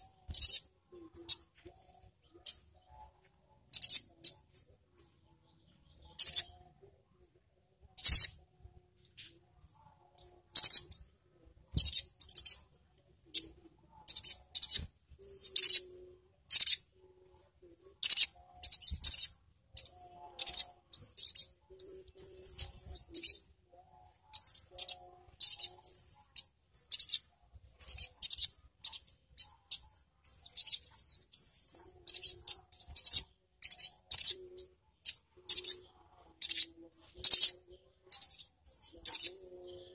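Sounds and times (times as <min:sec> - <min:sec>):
bird chirping and twittering: 0:00.0 - 0:17.0, 0:18.0 - 0:39.9.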